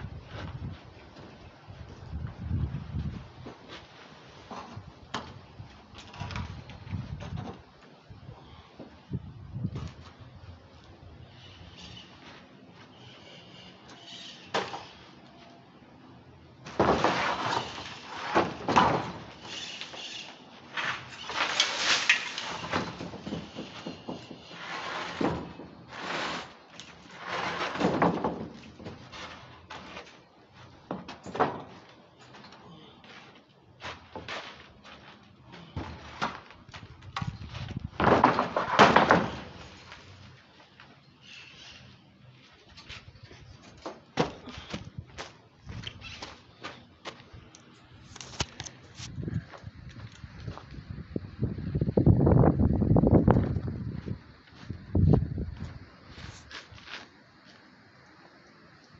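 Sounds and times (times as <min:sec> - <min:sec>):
debris clattering on scaffold: 0:16.6 - 0:30.2, 0:37.8 - 0:40.1
loud crashing crumbling: 0:16.7 - 0:19.8, 0:37.8 - 0:39.9
wooden board scraping: 0:16.7 - 0:30.2, 0:37.4 - 0:40.1.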